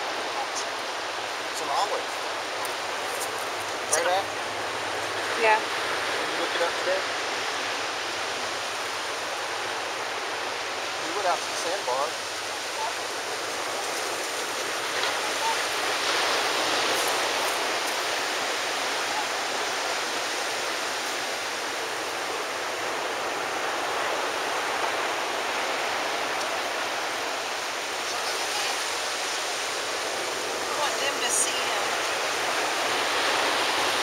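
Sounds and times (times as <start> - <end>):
surf washing on beach: 0.0 - 34.0.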